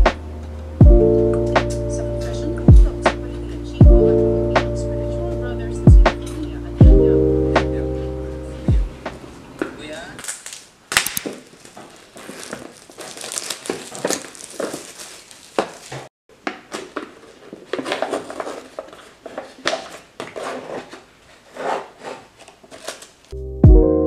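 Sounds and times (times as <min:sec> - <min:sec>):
packaging crinkling and scraping: 0:10.2 - 0:23.4.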